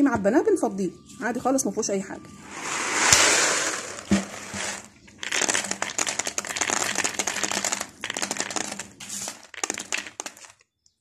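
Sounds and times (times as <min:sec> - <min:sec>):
plastic bottle crinkling: 0:03.1 - 0:10.7
beans clicking against plastic bottle: 0:03.1 - 0:11.0.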